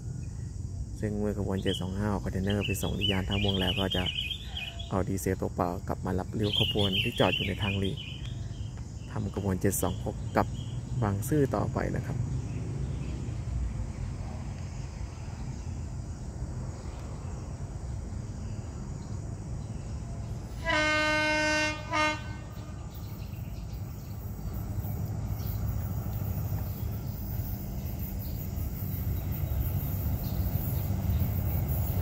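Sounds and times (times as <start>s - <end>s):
train rumble: 0.0s - 32.0s
locomotive horn blasts: 20.5s - 22.8s.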